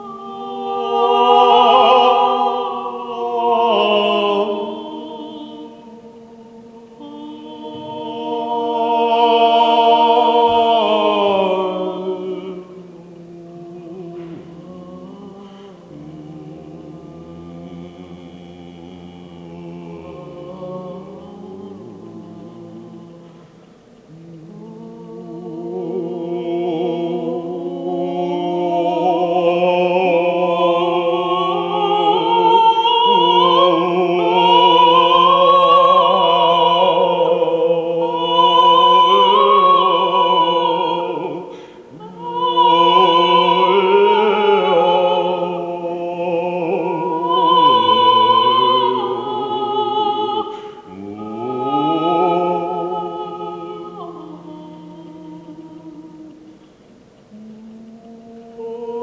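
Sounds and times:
woman singing operatically: 24.2s - 56.5s.

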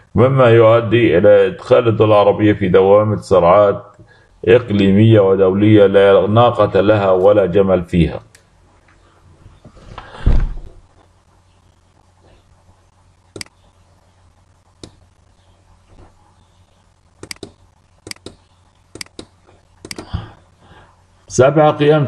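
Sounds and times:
loud low thump: 10.1s - 10.8s
computer mouse clicks: 13.3s - 13.6s, 14.8s - 15.1s, 17.2s - 20.1s.

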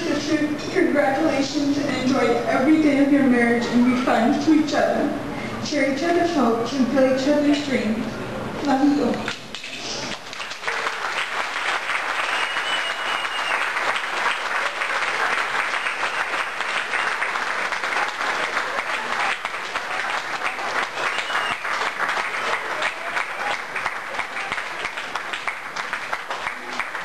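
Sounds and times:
audience applauding: 9.5s - 27.0s.

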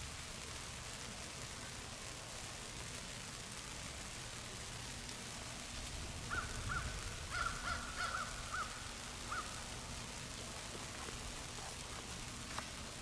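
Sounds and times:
birds calling: 6.3s - 9.6s.

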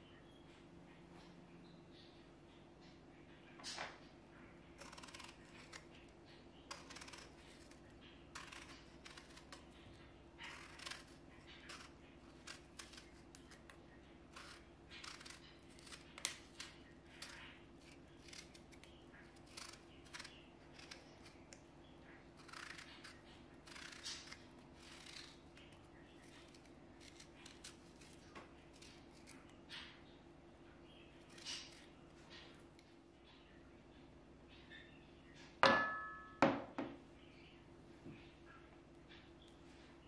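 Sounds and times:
faint steady hum: 0.0s - 40.0s
knife cutting peach: 4.8s - 21.7s, 22.4s - 29.9s, 31.2s - 32.4s.

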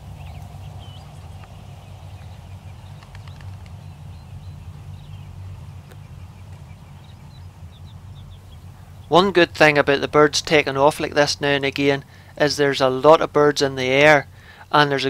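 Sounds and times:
wind rumble on microphone: 0.0s - 9.1s
flock of birds calling: 0.0s - 15.0s.

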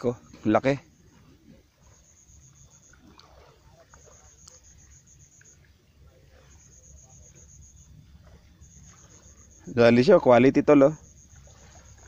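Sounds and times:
insects chirping: 0.0s - 12.0s.

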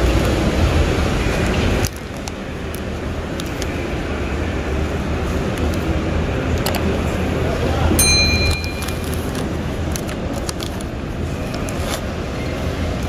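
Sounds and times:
steady rushing noise: 0.0s - 13.0s
plastic bag crinkling: 8.6s - 12.1s.

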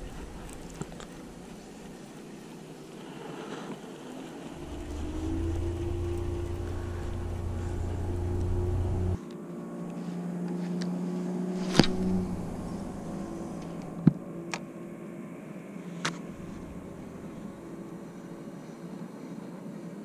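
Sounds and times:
boat motor humming: 4.4s - 9.2s, 11.6s - 15.3s, 16.2s - 18.8s.

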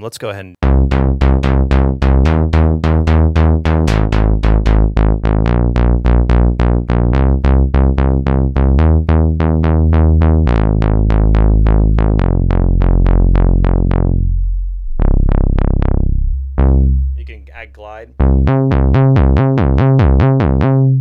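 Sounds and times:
synth bass line plucky notes: 0.6s - 21.0s.

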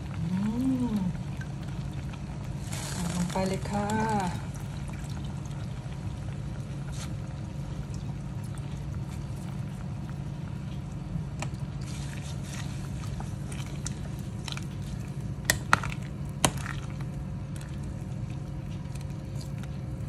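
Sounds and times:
broth simmering in a pot: 0.0s - 20.0s
low hum: 0.0s - 20.0s
ladle stirring: 11.4s - 19.7s.

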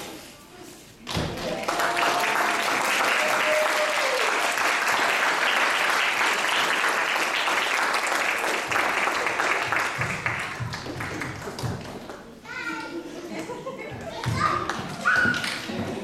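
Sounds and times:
audience applause: 1.4s - 11.6s.

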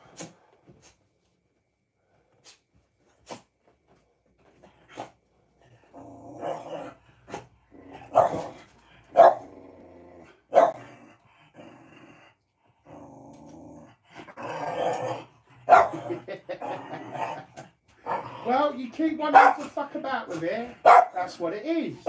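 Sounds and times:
dog growling: 4.9s - 18.8s
dog barking: 8.1s - 8.5s, 9.1s - 9.5s, 10.5s - 10.8s, 15.7s - 16.1s, 19.3s - 19.7s, 20.8s - 21.3s.

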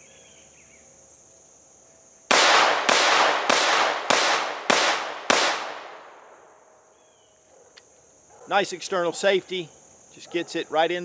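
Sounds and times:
insects buzzing: 0.0s - 11.0s
pistol shots: 2.3s - 6.4s.

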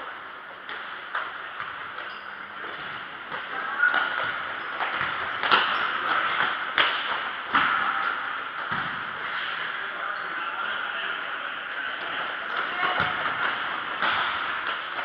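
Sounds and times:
ball kicks echoing: 1.5s - 9.2s, 12.7s - 14.9s.

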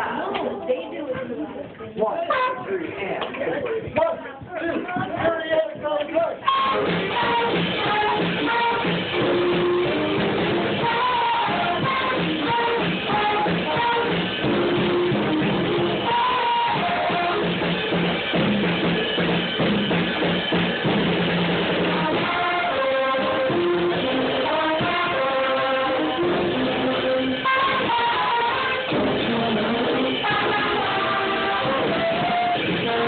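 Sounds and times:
drums: 0.0s - 33.0s
school band playing: 2.1s - 3.0s, 4.7s - 33.0s
flute and wind instruments: 6.4s - 20.6s, 21.8s - 33.0s.

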